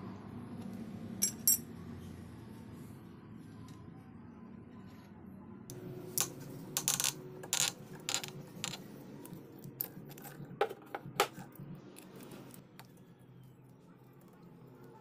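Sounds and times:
metal tool parts clinking: 1.2 - 1.6, 6.2 - 8.8.

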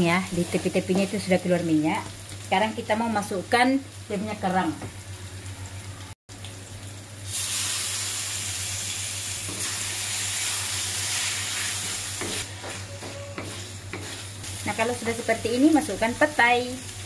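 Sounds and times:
shellfish sizzling in a wok: 0.0 - 17.0
wooden spatula scraping and stirring: 11.8 - 15.2.

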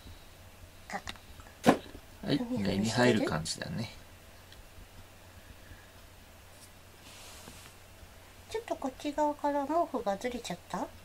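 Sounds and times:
steady low hum: 0.0 - 11.0
soft rustle: 4.8 - 8.5.

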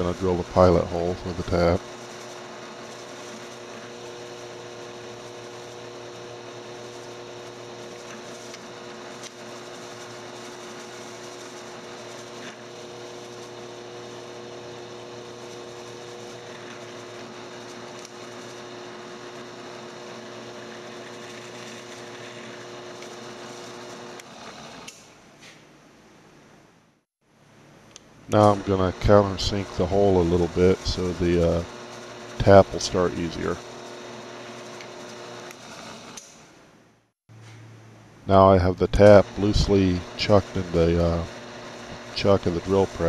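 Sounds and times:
drill press drilling steel: 0.0 - 25.1, 28.3 - 36.6, 38.9 - 43.0.

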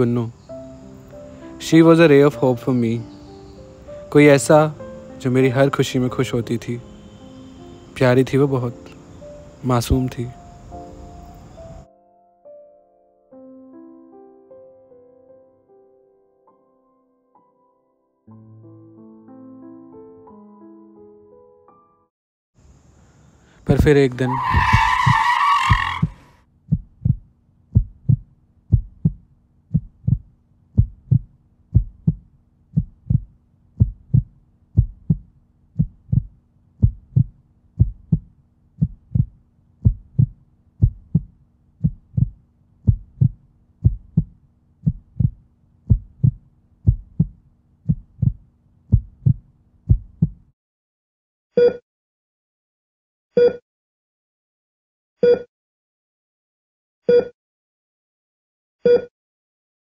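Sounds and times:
tyre screech: 24.2 - 26.3
heartbeat thumps: 25.7 - 50.5
short beeps: 51.6 - 51.8, 53.4 - 53.6, 55.2 - 55.5, 57.1 - 57.4, 58.9 - 59.1.

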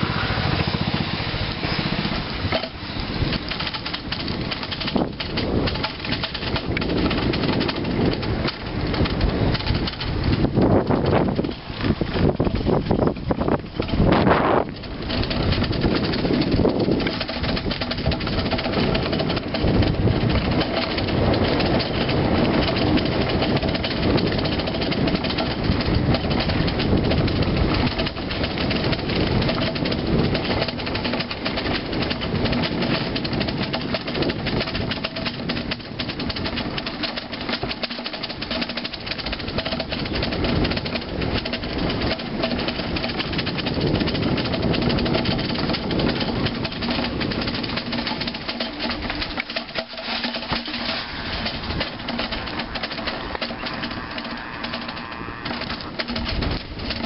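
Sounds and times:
bicycle rattling over concrete: 0.0 - 57.0
tyre rumble: 0.0 - 57.0.

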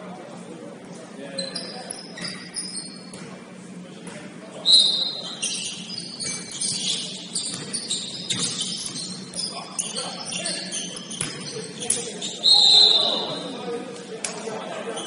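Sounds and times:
sneakers squeaking on hardwood: 1.4 - 3.4, 4.1 - 13.6
basketball dribbling: 5.2 - 11.9.

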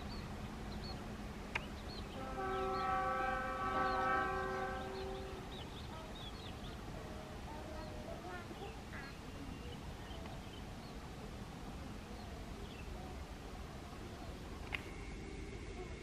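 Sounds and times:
birds chirping: 0.0 - 16.0
train horn blast: 2.1 - 6.1.

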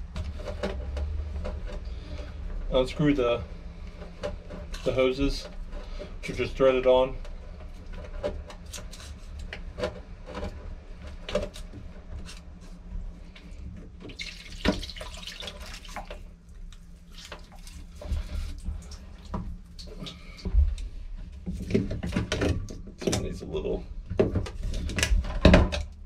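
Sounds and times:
water trickling: 14.0 - 20.3.

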